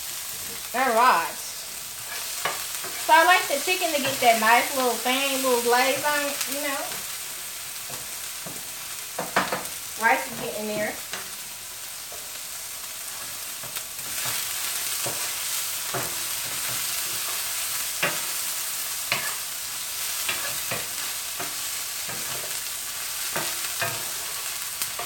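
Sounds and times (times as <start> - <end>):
chicken sizzling in a pan: 0.0 - 25.0.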